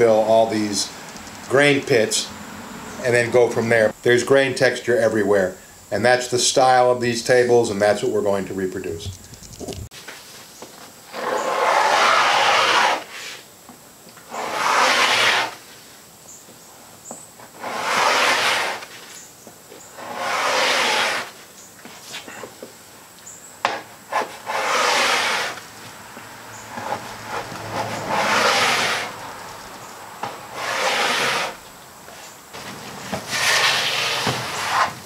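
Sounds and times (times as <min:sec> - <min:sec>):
sharp clicks: 0:01.0 - 0:01.6, 0:09.0 - 0:09.9
scraper scraping wooden tabletop: 0:11.1 - 0:13.4, 0:14.3 - 0:15.6, 0:17.4 - 0:19.2, 0:19.9 - 0:22.4, 0:23.7 - 0:25.7, 0:26.7 - 0:29.4, 0:30.2 - 0:31.6, 0:32.2 - 0:35.0.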